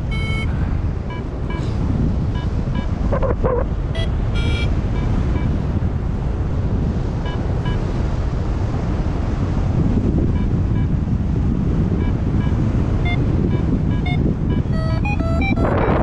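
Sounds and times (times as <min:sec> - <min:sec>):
short electronic beeps: 0:00.0 - 0:00.5, 0:01.1 - 0:01.7, 0:04.0 - 0:05.6, 0:12.0 - 0:16.0
wind buffeting microphone: 0:00.0 - 0:16.0.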